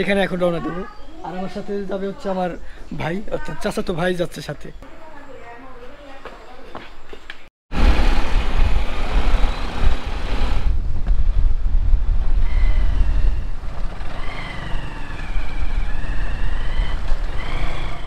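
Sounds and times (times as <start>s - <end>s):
motorcycle engine rumble: 7.7s - 18.0s
wind buffeting microphone: 7.7s - 18.0s.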